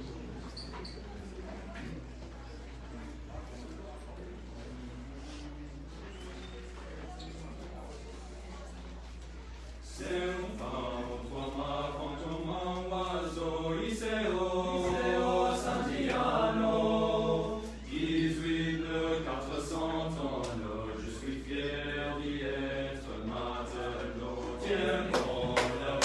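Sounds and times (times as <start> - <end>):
male choir singing a cappella: 9.9 - 26.0.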